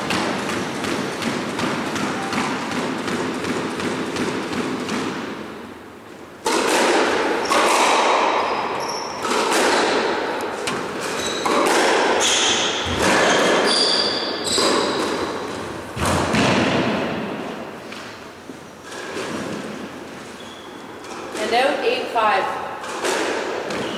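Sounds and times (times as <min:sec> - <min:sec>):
squash racquet hitting ball: 0:00.0 - 0:20.2, 0:22.6 - 0:23.9
shoes squeaking on wooden floor: 0:08.4 - 0:09.3, 0:10.7 - 0:11.6, 0:12.2 - 0:15.7, 0:19.3 - 0:21.3, 0:23.7 - 0:23.9.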